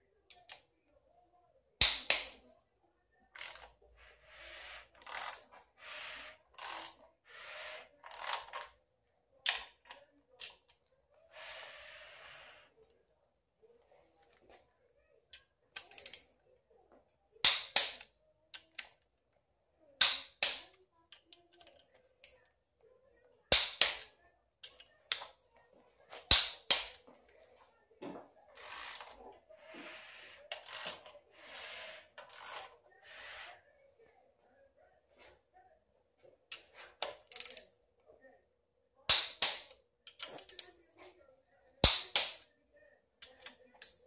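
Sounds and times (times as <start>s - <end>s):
ratchet rasping: 4.4s - 8.6s, 32.3s - 32.7s
torque wrench clicking: 30.6s - 31.0s, 32.3s - 32.7s, 37.3s - 37.6s.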